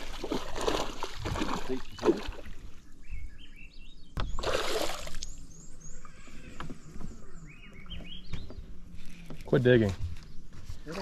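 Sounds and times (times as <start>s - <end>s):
fish splashing at surface: 0.0s - 2.4s.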